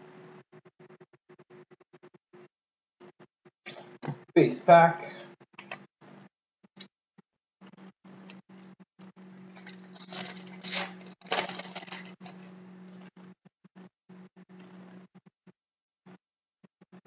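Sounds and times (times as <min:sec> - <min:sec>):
low steady hum: 0:07.7 - 0:15.1
foil pack tearing and crinkling: 0:09.5 - 0:13.1.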